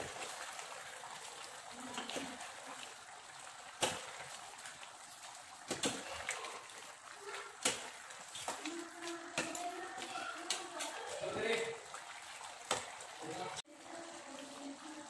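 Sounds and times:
scraping and wet stirring: 3.8 - 13.6.

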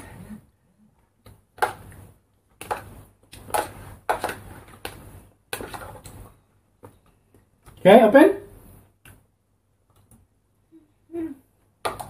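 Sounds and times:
spoon scraping plastic bowl: 2.6 - 6.3.

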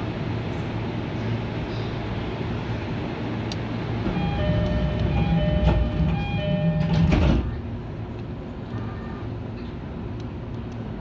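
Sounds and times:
sliding doors thudding shut: 4.0 - 7.6
two-note door chime: 4.2 - 7.0.

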